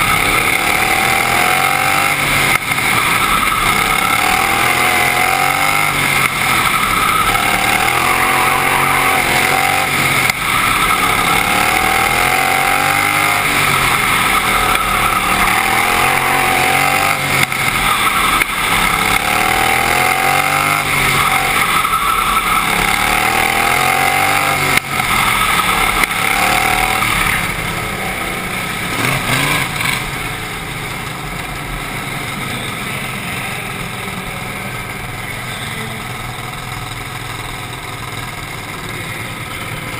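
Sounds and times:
racing lawn mower engine revving: 0.0s - 30.9s.

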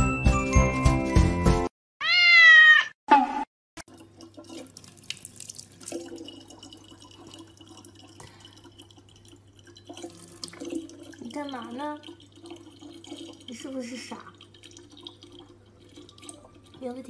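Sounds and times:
cat meowing: 2.0s - 3.0s
water running from a tap into a bottle: 3.8s - 17.0s.

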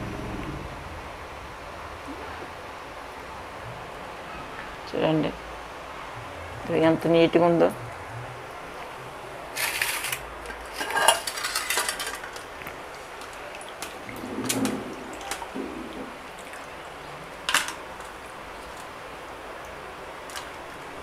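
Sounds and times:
metal dishes and utensils clinking: 9.6s - 12.5s, 17.5s - 18.1s.

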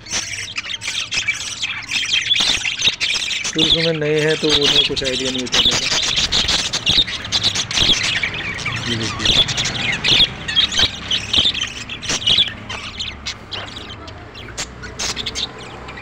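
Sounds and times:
budgerigars chirping and squawking: 0.0s - 16.0s.

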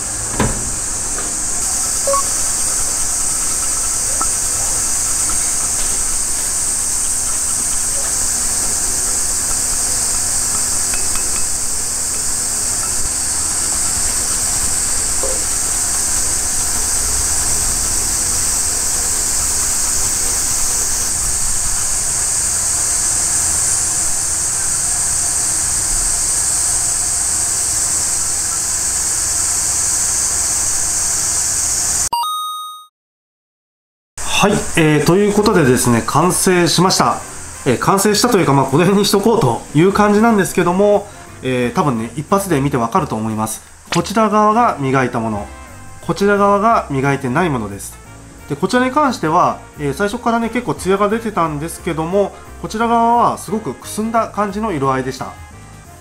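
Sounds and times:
high-pitched hiss: 0.0s - 32.1s, 34.2s - 56.0s.

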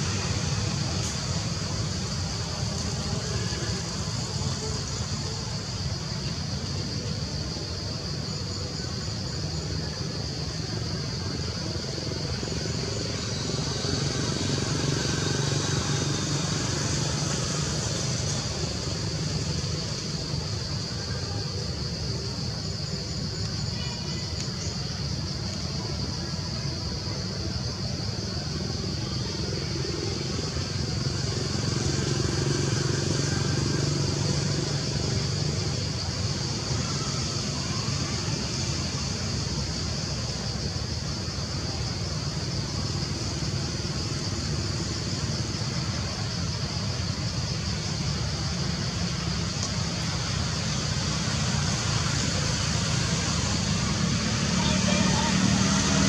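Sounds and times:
distant traffic rumble: 0.0s - 56.0s
high-pitched hiss: 0.0s - 56.0s
vehicle engine droning: 28.9s - 56.0s.

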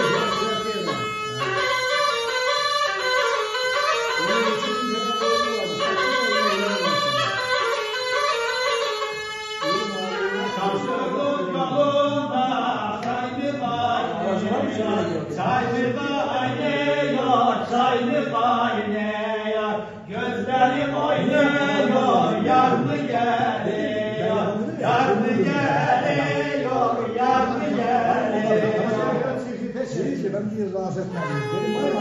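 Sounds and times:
man singing unaccompanied: 0.0s - 2.3s, 9.5s - 29.7s, 31.1s - 32.0s.

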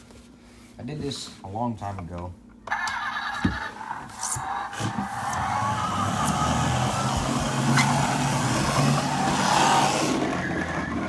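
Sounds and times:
toy truck motor humming: 3.4s - 11.0s.

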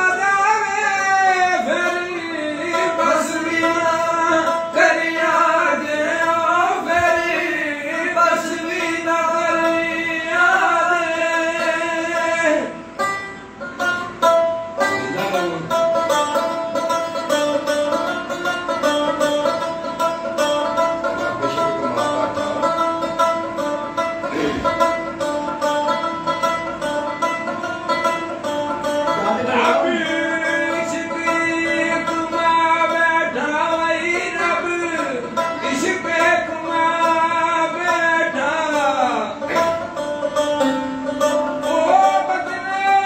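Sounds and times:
man singing folk song: 0.0s - 12.8s, 29.1s - 43.0s
plucked long-necked string instrument: 0.0s - 43.0s.

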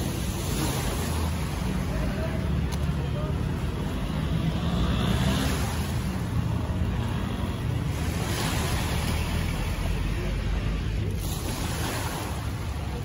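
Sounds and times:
small waves washing ashore: 0.0s - 13.0s.

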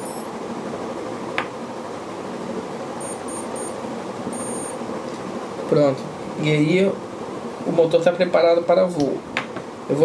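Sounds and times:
motor startup beeps: 0.0s - 0.3s, 3.0s - 4.9s.

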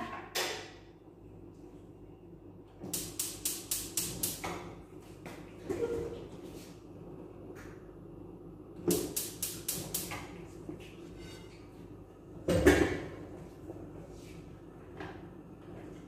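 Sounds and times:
gas stove igniter clicking: 2.8s - 4.7s, 8.9s - 10.3s.

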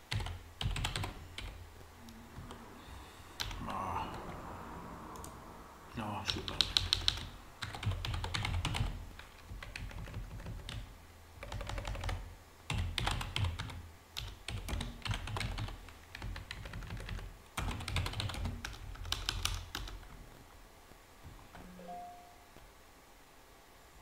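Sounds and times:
typing on computer keyboard: 0.0s - 1.6s, 6.3s - 20.2s.

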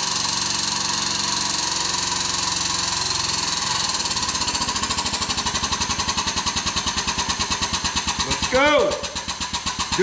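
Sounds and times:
hydraulic pump running: 0.0s - 10.0s.

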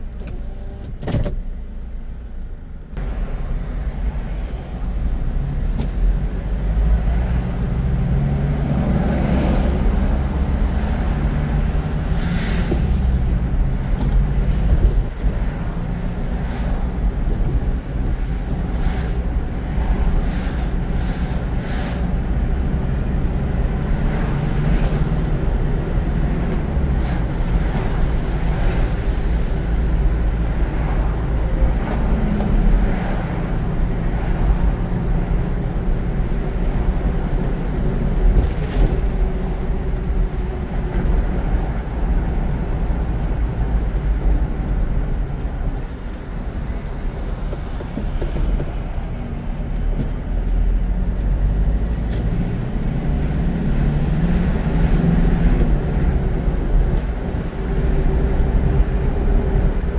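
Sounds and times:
car engine and tyres rumbling: 0.0s - 59.9s.

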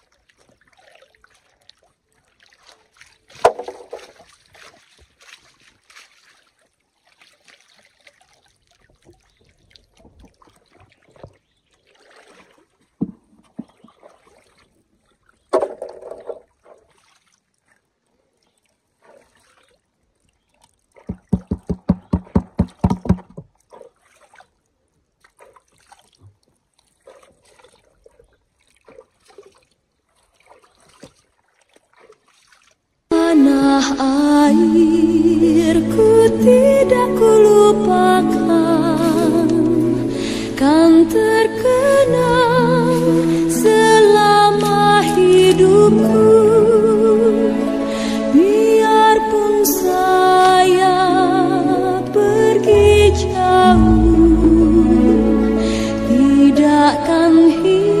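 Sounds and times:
water sloshing in a pan: 0.0s - 22.3s, 23.4s - 32.9s.

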